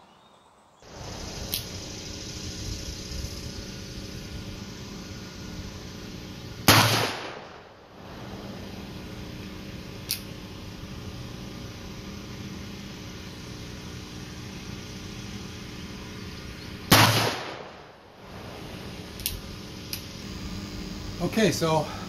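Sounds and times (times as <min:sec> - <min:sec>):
generator hum: 0:00.8 - 0:22.0
revolver gunshot: 0:06.6 - 0:07.8, 0:16.9 - 0:18.4.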